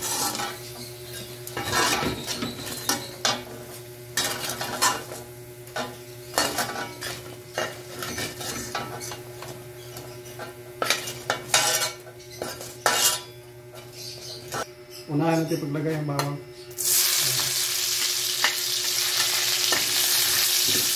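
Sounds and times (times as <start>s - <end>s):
metal spatula scraping a wok: 0.0s - 3.6s, 10.3s - 13.4s.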